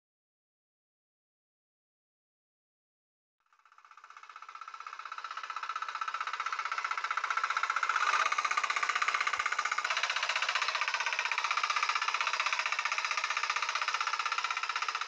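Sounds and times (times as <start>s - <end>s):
tiller engine running: 3.9s - 15.0s.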